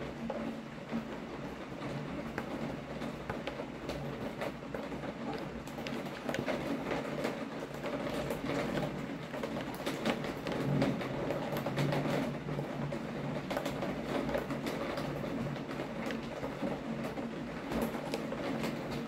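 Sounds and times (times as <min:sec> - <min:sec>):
raindrops ticking on surface: 0:00.0 - 0:19.0.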